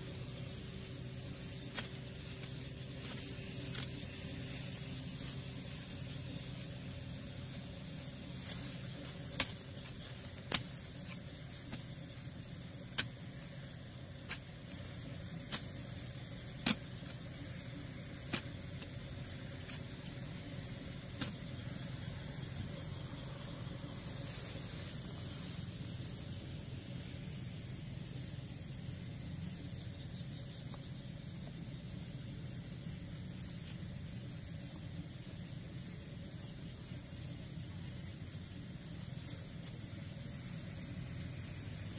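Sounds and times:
high insect chorus: 0.0s - 41.9s
digging tool knocking soil: 16.5s - 17.2s, 18.2s - 19.0s, 21.1s - 21.5s.

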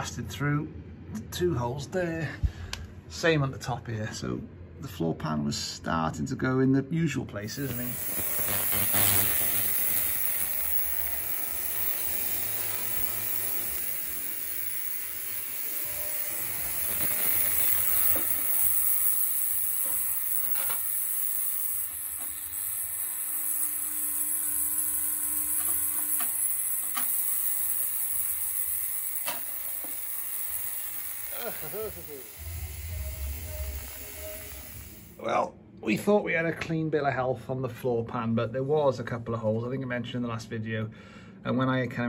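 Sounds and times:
ultrasonic cleaner high-pitched hiss: 7.5s - 35.2s.

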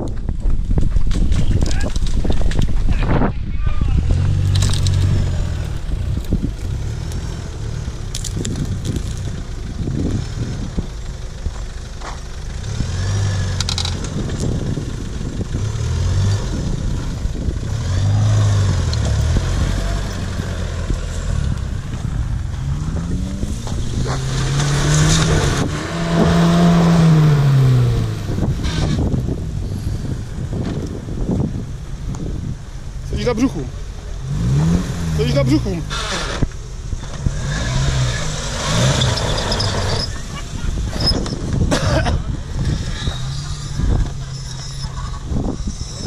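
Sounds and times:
off-road engines revving: 1.5s - 46.0s
branches and gravel crunching under tyres: 4.0s - 10.2s.

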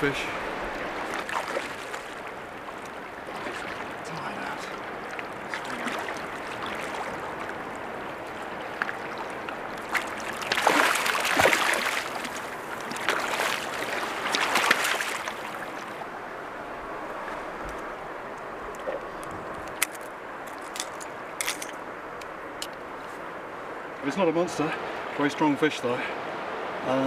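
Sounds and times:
river water rushing: 0.0s - 27.0s
fish splashing at surface: 10.0s - 15.4s.

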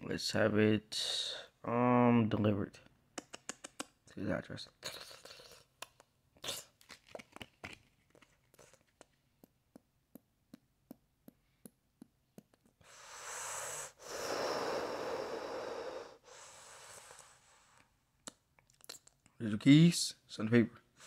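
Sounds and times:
loud breathy rush of noise: 12.9s - 17.7s.

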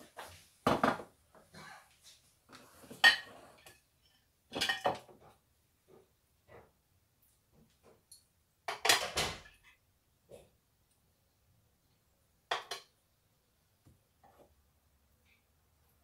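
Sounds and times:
plates and cutlery clattering: 2.8s - 5.4s, 8.7s - 9.8s, 12.5s - 13.0s.

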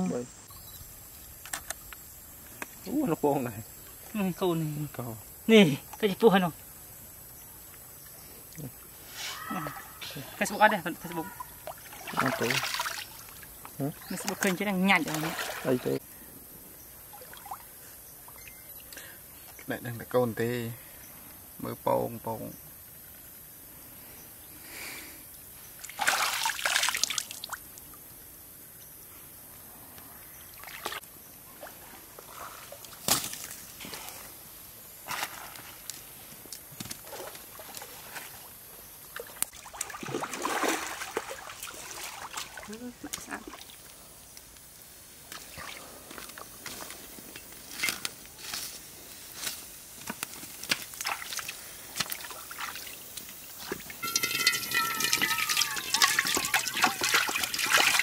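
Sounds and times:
stream water splashing: 10.3s - 16.0s, 17.1s - 18.4s, 25.8s - 27.7s, 30.5s - 34.2s, 36.9s - 44.0s, 50.5s - 58.0s
firewood crackling and knocking: 50.0s - 51.0s, 53.6s - 58.0s.

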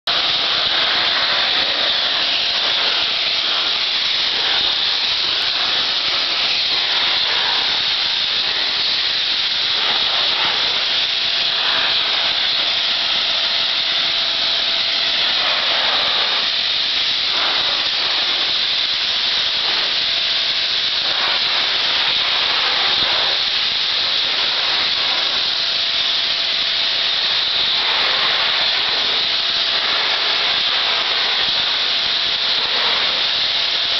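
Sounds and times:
pressure washer spraying wood: 0.0s - 33.9s.

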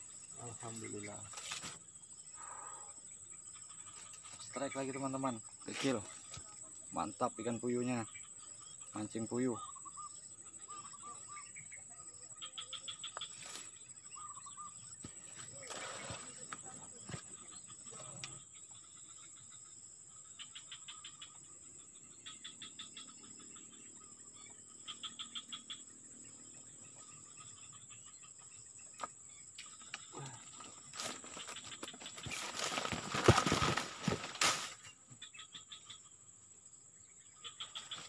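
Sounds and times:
insects chirping and droning: 0.0s - 38.0s
rustling and handling noise: 31.0s - 34.8s.

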